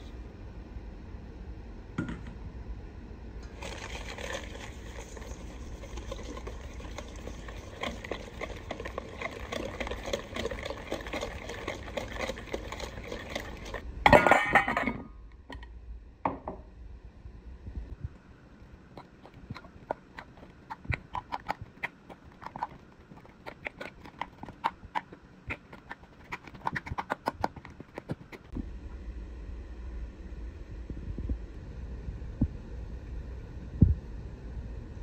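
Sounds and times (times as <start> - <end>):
whisk scraping metal bowl: 3.6 - 13.8, 19.0 - 28.5.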